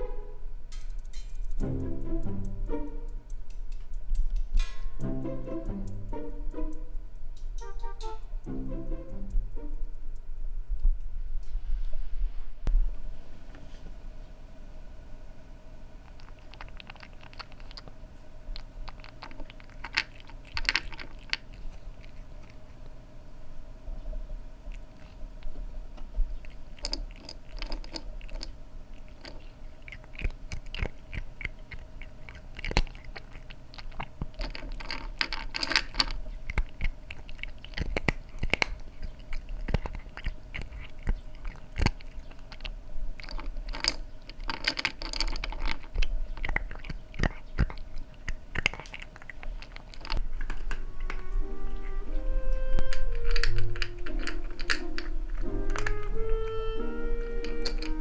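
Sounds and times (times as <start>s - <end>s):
cat crunching dry kibble: 16.0s - 23.0s, 24.6s - 50.8s, 52.8s - 56.2s, 57.4s - 58.0s.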